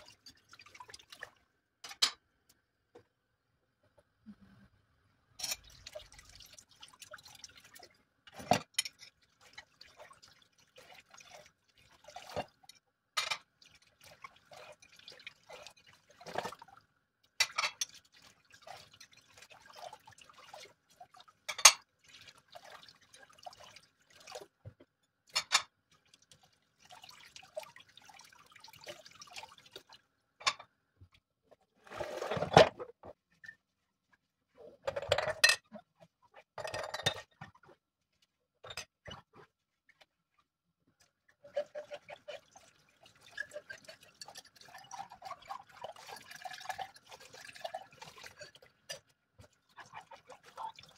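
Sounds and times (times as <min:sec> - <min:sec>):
dishes clinking: 0:01.8 - 0:02.2, 0:25.3 - 0:25.7, 0:30.4 - 0:30.7
water splashing and dripping: 0:05.6 - 0:12.8, 0:13.4 - 0:30.1, 0:39.0 - 0:50.9.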